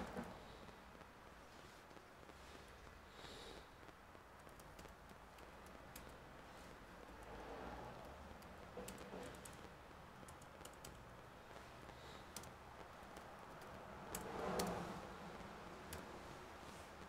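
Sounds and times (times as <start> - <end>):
laptop keyboard typing: 2.3 - 17.0.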